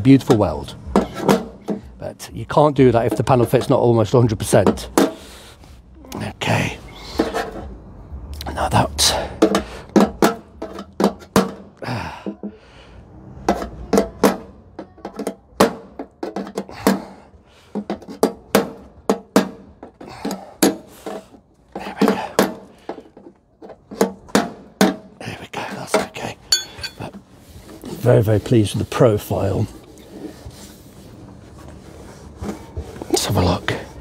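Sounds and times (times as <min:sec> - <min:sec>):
hammer striking metal: 0:26.5 - 0:27.0.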